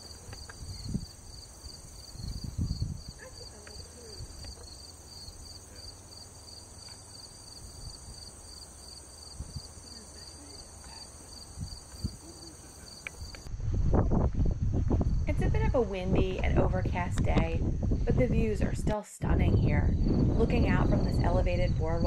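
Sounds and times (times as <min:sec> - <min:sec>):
wind buffeting microphone: 0:00.0 - 0:05.5, 0:07.5 - 0:08.5, 0:09.2 - 0:10.3, 0:11.3 - 0:22.0
crickets chirping: 0:00.0 - 0:13.5, 0:19.9 - 0:21.8
high insect hiss: 0:00.0 - 0:13.5.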